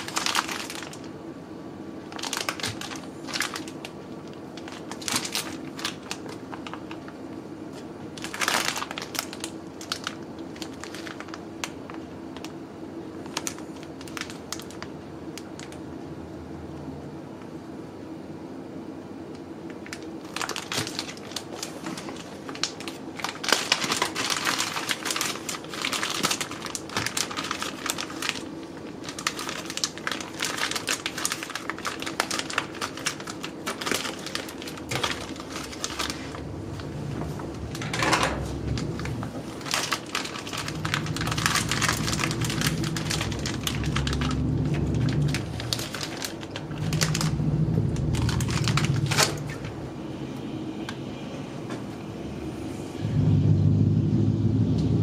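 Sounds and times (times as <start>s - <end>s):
plastic bag crinkling: 0.0s - 1.2s, 2.0s - 15.8s, 19.7s - 49.8s
low steady rumble: 12.4s - 19.2s, 29.8s - 55.0s.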